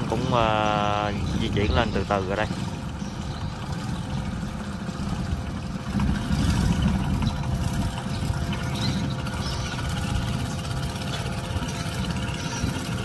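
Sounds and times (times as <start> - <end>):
boat engine low rumble: 0.0 - 13.0.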